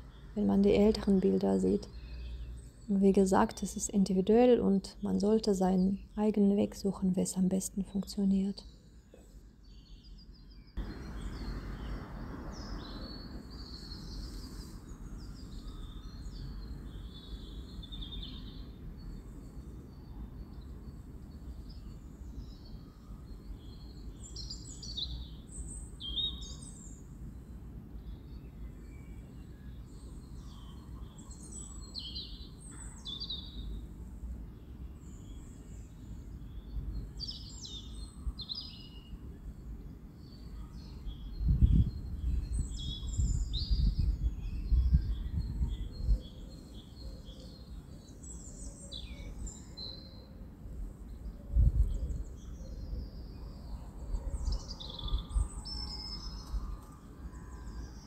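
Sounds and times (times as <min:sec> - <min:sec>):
small birds chirping: 0:00.0 - 0:27.1.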